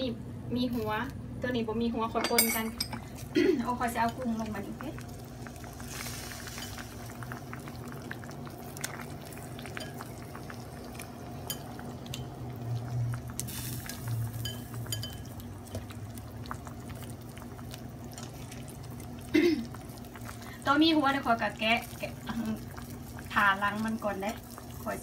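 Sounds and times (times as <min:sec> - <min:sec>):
steady low hum: 0:00.0 - 0:25.0
sauce bubbling: 0:03.0 - 0:25.0
shrimp moving in pan: 0:03.8 - 0:07.8.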